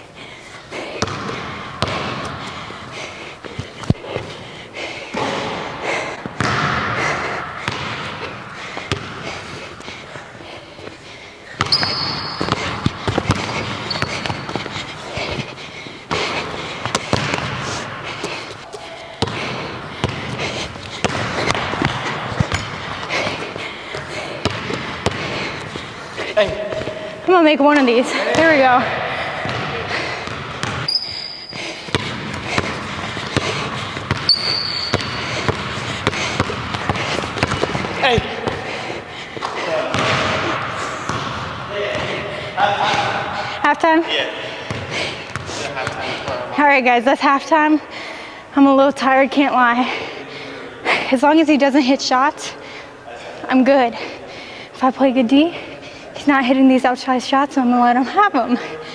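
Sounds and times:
basketball bouncing on wooden floor: 0.9 - 2.5, 6.2 - 9.4, 11.6 - 15.4, 16.1 - 17.6, 19.2 - 25.6, 28.1 - 42.2, 44.6 - 46.2
sneaker squeaks: 11.5 - 15.5, 18.6 - 23.5, 29.4 - 38.7
high squeaks: 11.7 - 12.7, 13.5 - 14.7, 30.9 - 31.6, 34.3 - 35.4.

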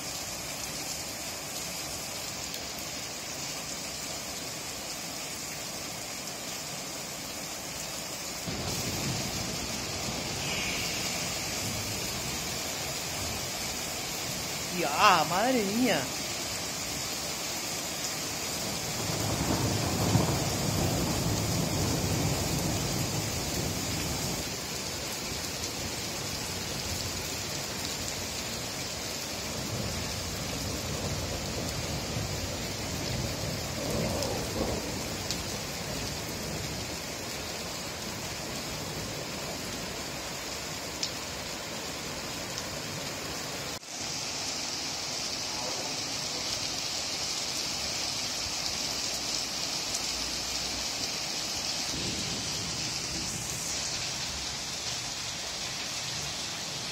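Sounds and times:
heavy rain and hail on pavement: 0.0 - 56.9
thunder rumbling: 8.5 - 12.6, 19.0 - 24.5, 29.6 - 35.6, 52.0 - 54.4.

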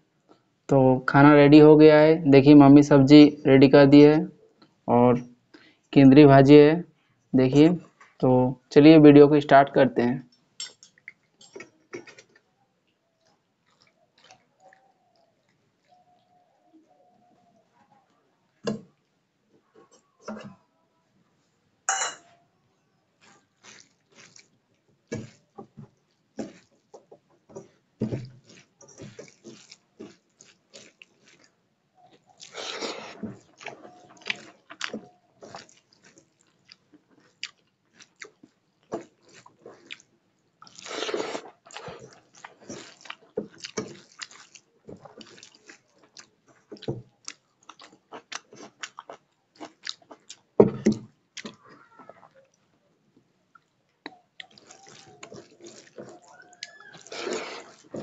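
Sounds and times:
chewing: 10.3 - 20.7, 23.2 - 52.8, 53.5 - 58.0
fingers mixing rice on plate: 23.2 - 50.5, 54.1 - 58.0.

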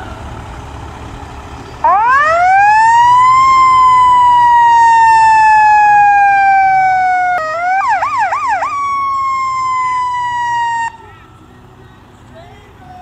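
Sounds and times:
emergency vehicle siren: 1.8 - 11.6.

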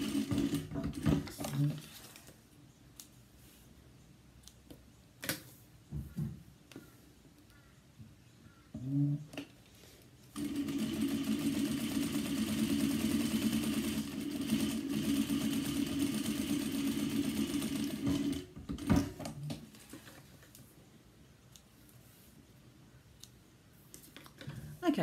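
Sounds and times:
sewing machine running: 0.0 - 1.2, 10.4 - 18.5.

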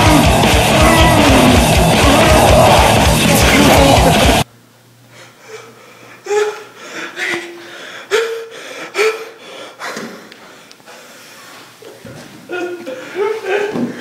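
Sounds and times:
man gasping and groaning: 0.0 - 4.4.

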